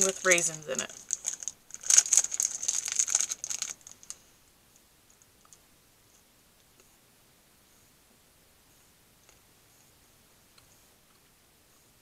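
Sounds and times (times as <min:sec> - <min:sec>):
plastic wrapper crinkling: 0:00.0 - 0:04.2.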